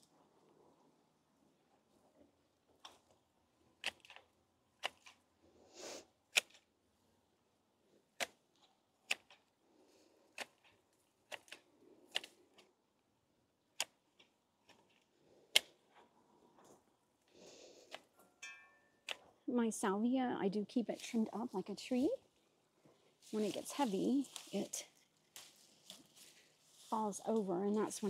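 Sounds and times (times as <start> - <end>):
foliage rustling: 20.8 - 28.0.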